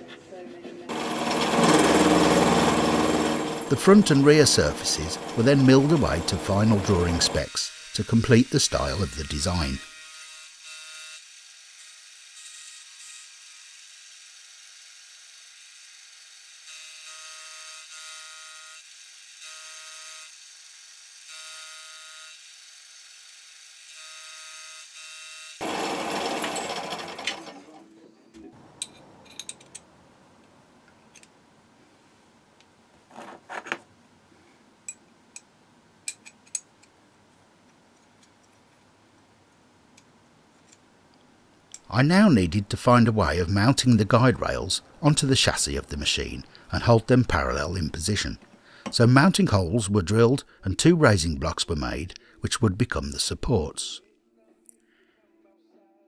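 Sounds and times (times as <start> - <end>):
milling machine whine: 0.9 - 7.8, 25.6 - 27.6.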